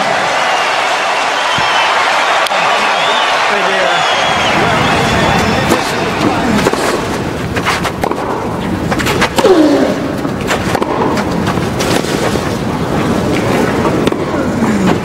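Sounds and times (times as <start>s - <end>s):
murmur of crowd: 0.0s - 8.0s
racquets striking tennis ball: 5.6s - 12.6s, 13.4s - 14.5s.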